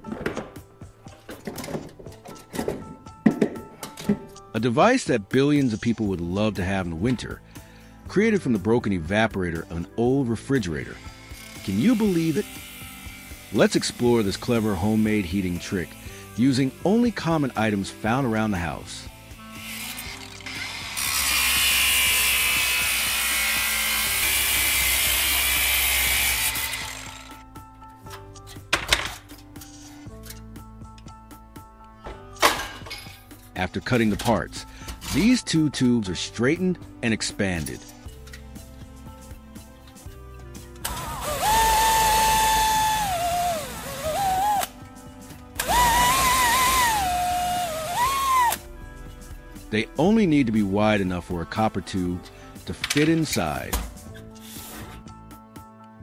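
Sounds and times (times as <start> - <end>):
angle grinder cutting metal tube: 10.8 - 18.3, 19.2 - 27.4, 40.8 - 44.7, 45.6 - 48.6
electric drill motor whine: 19.4 - 27.4, 40.8 - 44.7, 45.6 - 48.6.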